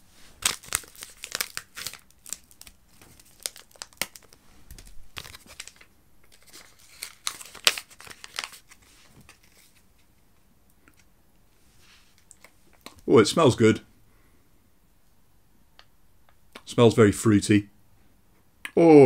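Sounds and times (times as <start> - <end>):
foil sachet crinkling and tearing: 0.4 - 9.8.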